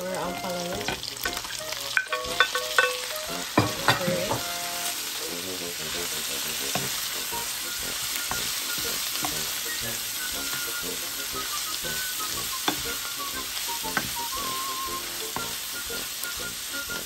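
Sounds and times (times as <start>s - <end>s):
stir-fry sizzling in pan: 0.0s - 17.0s
wooden spoon stirring: 6.0s - 11.2s, 13.8s - 17.0s.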